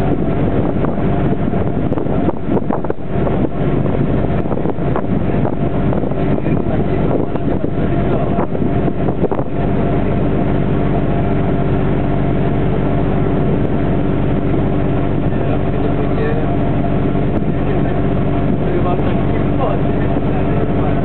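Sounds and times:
boat engine running: 0.0s - 21.0s
wind buffeting microphone: 0.0s - 21.0s.

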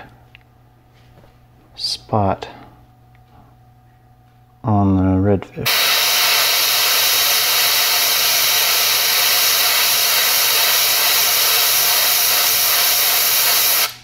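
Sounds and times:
airbrush spraying hiss: 5.7s - 14.0s.

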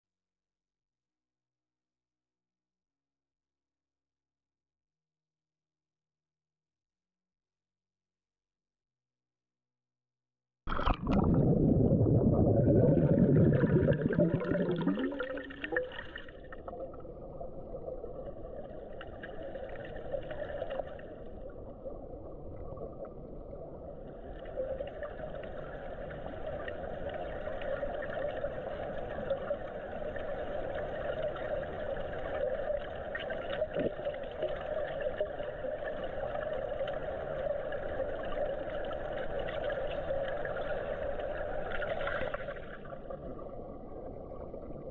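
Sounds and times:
steady underwater hum: 10.7s - 44.9s
underwater rush of water: 10.7s - 44.9s.

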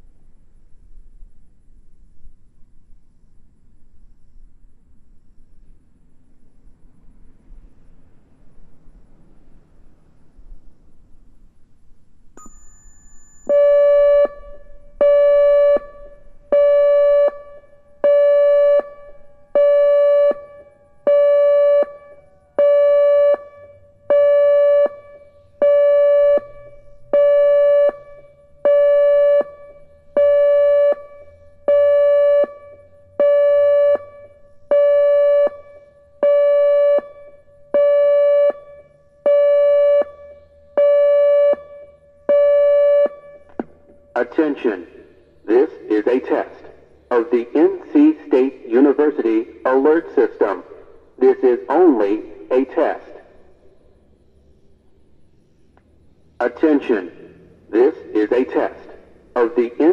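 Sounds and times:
electronic siren pulsing tone: 13.4s - 43.5s.

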